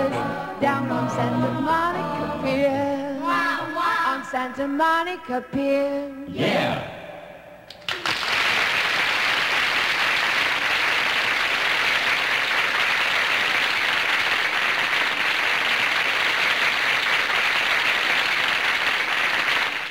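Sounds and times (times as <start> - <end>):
audience applauding: 7.8 - 19.9.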